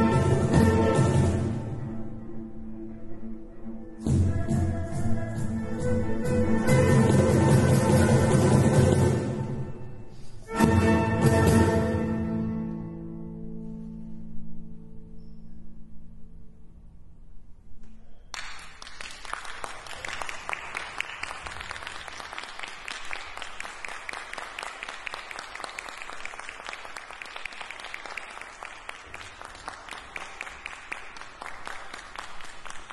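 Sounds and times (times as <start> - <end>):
audience applause: 18.3 - 32.9.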